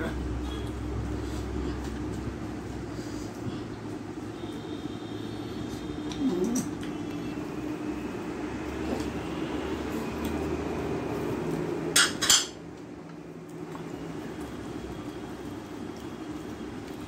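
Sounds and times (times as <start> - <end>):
dish clinking on tableware: 12.0 - 12.6.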